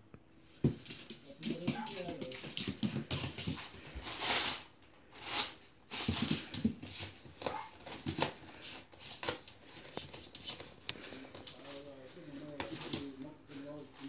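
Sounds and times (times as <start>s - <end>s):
puppy scrabbling on tiled floor: 0.6s - 4.6s, 5.3s - 11.8s.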